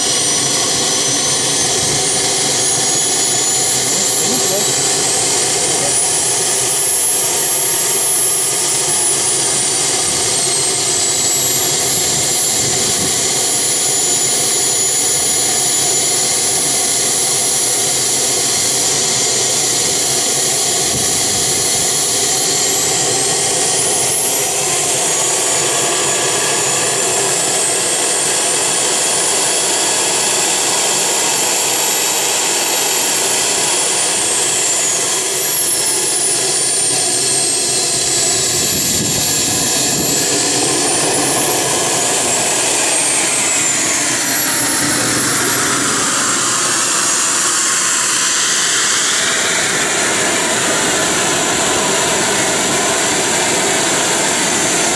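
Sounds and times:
jet turbine running: 0.0s - 54.9s.

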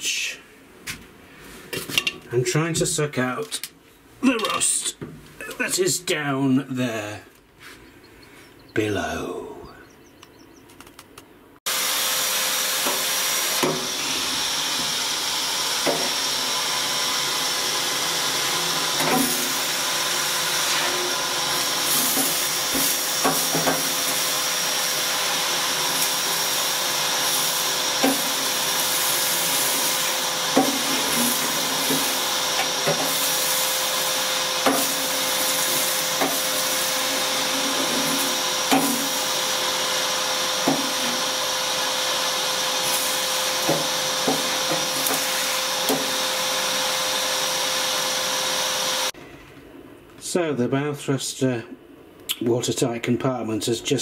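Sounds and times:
vacuum cleaner whining: 11.7s - 49.2s.

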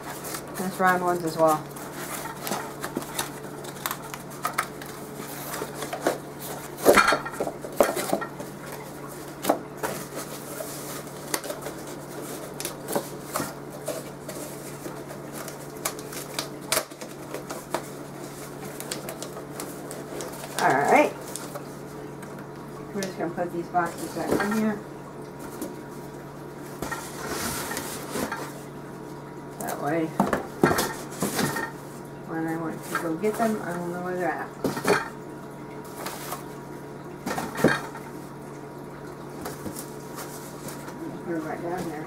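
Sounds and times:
cardboard packaging handled: 0.0s - 22.4s, 26.6s - 29.2s.

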